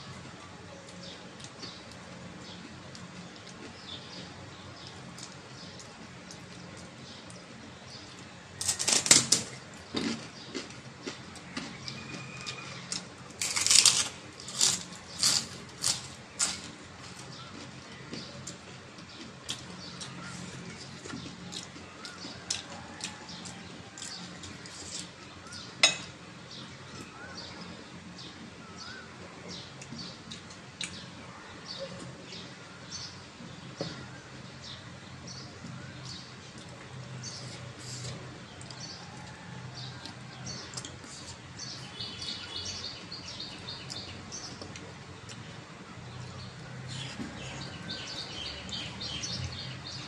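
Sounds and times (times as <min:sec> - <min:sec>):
crisp shell crunching: 0:13.4 - 0:16.8.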